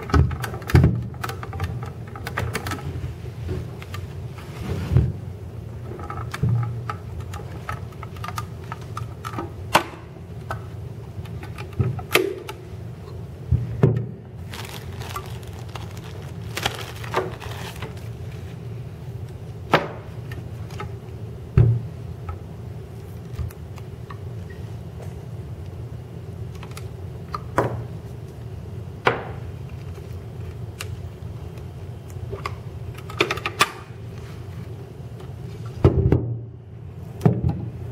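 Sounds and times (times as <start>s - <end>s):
steady low hum: 0.0s - 37.9s
plastic rustling: 14.4s - 18.7s.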